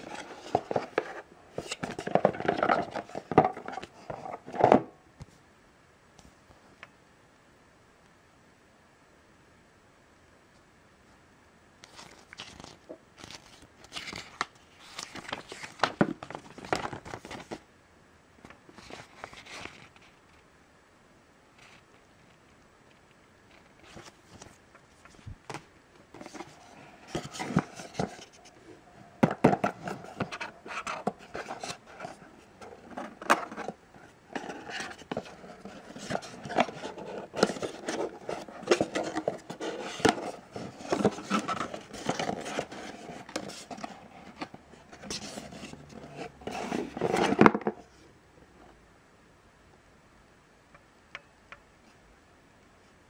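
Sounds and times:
paper and cardboard rustling: 0.0 - 4.9, 11.9 - 17.6, 18.5 - 20.2, 23.5 - 47.8.

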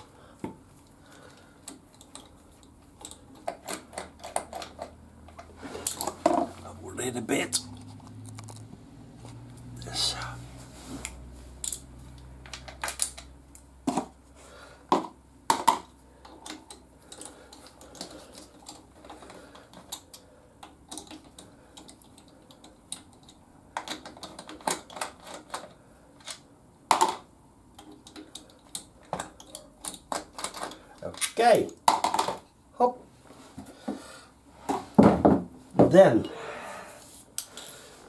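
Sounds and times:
screwdriver clicks and metallic taps: 1.6 - 6.1, 27.8 - 31.4.

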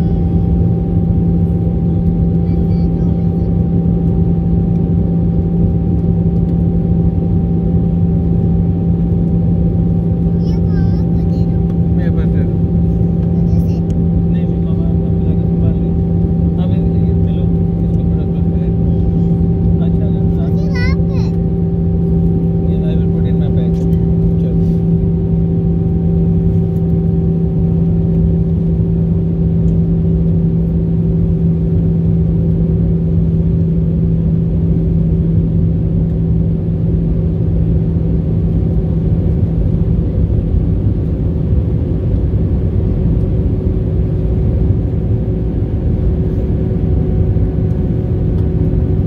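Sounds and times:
jet engines and airflow rumbling: 0.0 - 49.0
steady low hum: 0.0 - 49.0.

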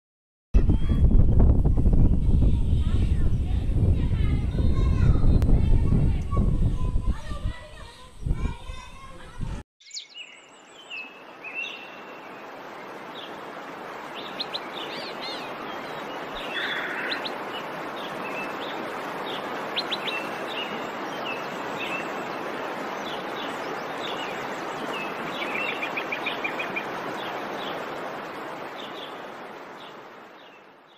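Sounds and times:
birds chirping: 2.8 - 30.9
steady background hiss: 10.4 - 30.9.

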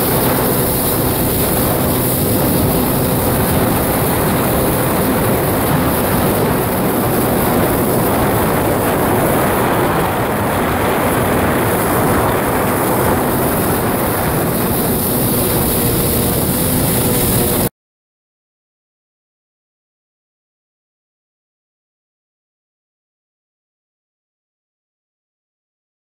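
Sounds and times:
wind rushing over water: 0.0 - 17.7.

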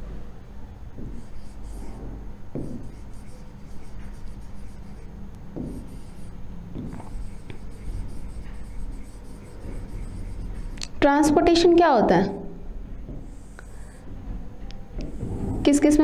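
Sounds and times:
steady low hum: 0.0 - 16.0
pen scratching on screen: 1.0 - 2.0, 2.6 - 11.0, 13.2 - 14.0, 15.0 - 16.0
pen knocking on screen: 1.0 - 10.9, 15.0 - 15.7.

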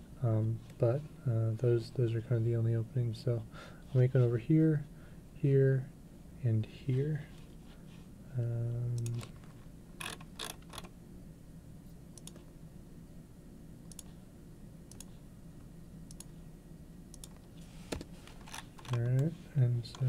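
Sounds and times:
low steady hum: 0.0 - 20.0
computer mouse clicking: 12.2 - 12.5, 13.9 - 14.2, 14.9 - 15.2, 16.1 - 16.4, 17.1 - 19.3.

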